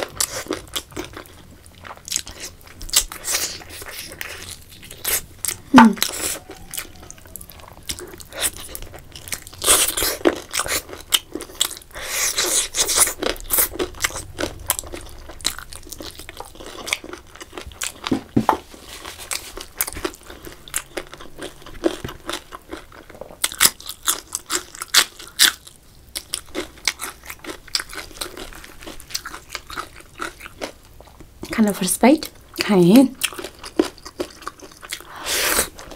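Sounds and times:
person chewing and biting food: 0.0s - 31.3s, 33.2s - 35.9s.

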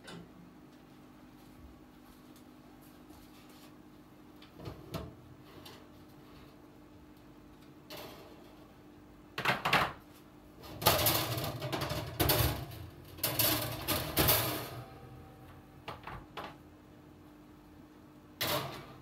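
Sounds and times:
steady low hum: 10.1s - 19.0s
kitchen items clattering: 10.7s - 15.0s.

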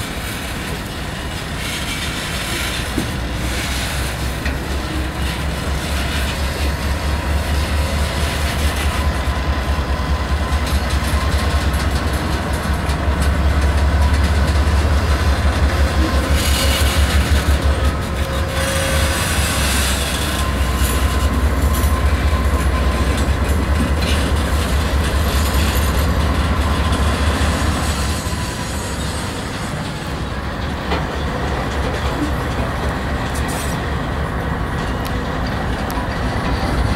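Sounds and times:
diesel locomotive engine throb: 0.0s - 36.9s
wheels clattering over rail joints: 0.0s - 36.9s.

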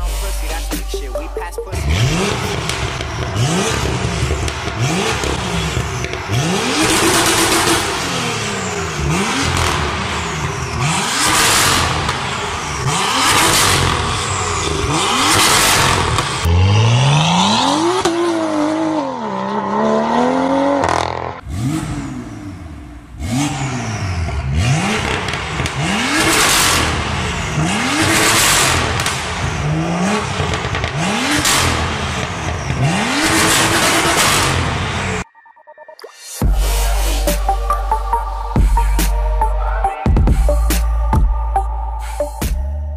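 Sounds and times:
car engine revving: 0.0s - 35.2s.

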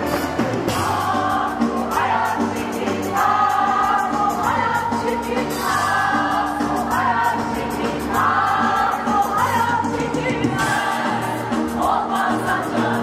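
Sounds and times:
choir singing with accompaniment: 0.0s - 13.0s.

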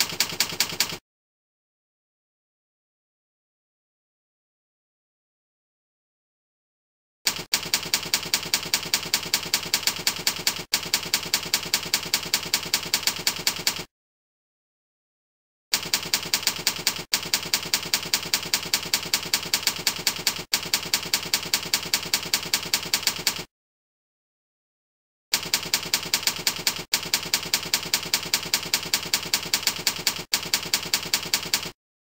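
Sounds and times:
typewriter key clacks: 0.0s - 1.0s, 25.4s - 31.8s.

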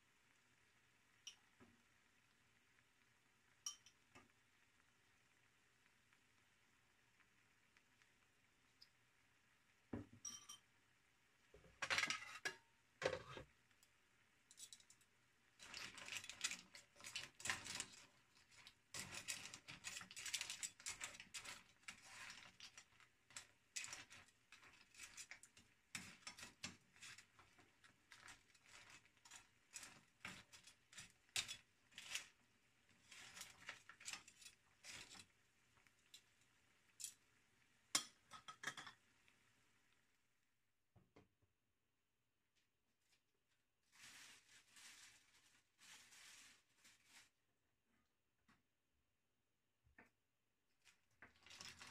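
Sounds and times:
shells clinking in a frying pan: 3.6s - 4.1s, 10.2s - 10.7s, 14.5s - 32.4s, 36.9s - 37.2s, 37.9s - 39.0s.

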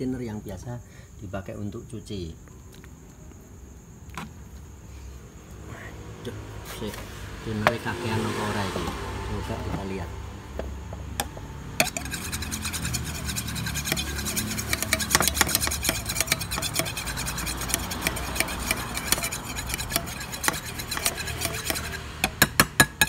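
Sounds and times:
stick scraping inside metal paint tin: 11.8s - 23.0s.

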